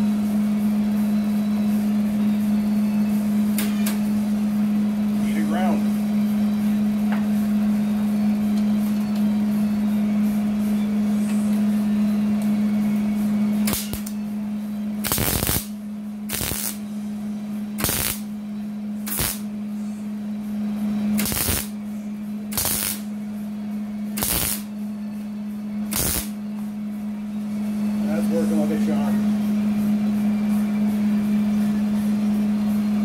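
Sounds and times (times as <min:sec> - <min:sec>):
steady low hum: 0:00.0 - 0:33.0
welder arc bursts: 0:13.6 - 0:14.1, 0:15.0 - 0:15.7, 0:16.3 - 0:16.8, 0:17.8 - 0:18.3, 0:19.0 - 0:19.5, 0:21.2 - 0:21.7, 0:22.5 - 0:23.1, 0:24.2 - 0:24.7, 0:25.9 - 0:26.4.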